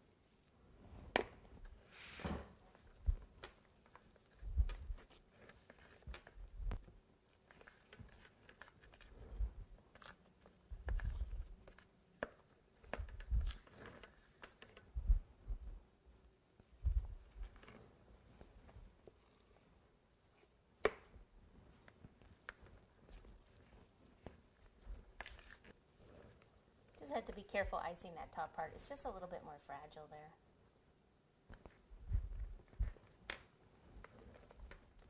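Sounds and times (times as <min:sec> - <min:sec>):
spatula scraping icing: 0:03.8 - 0:06.4, 0:07.3 - 0:11.9, 0:12.8 - 0:14.9, 0:22.6 - 0:26.5
dull low thumps: 0:16.8 - 0:17.2, 0:32.0 - 0:32.9.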